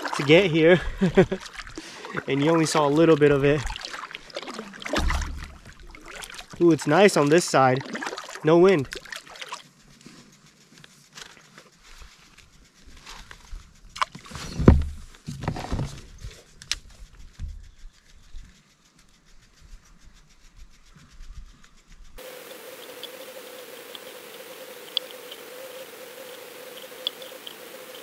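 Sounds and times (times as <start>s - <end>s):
dull bump: 4.9s - 5.9s, 14.5s - 16.1s.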